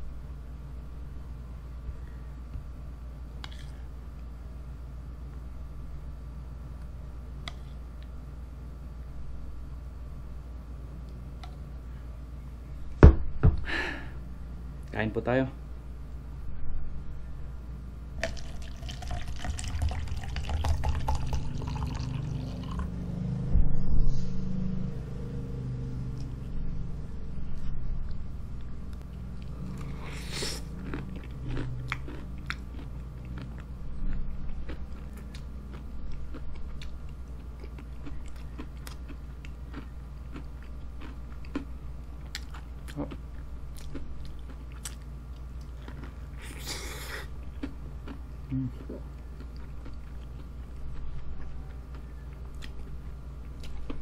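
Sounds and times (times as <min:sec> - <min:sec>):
steady low hum: 0:00.0 - 0:54.0
chewing and biting chicken: 0:29.4 - 0:54.0.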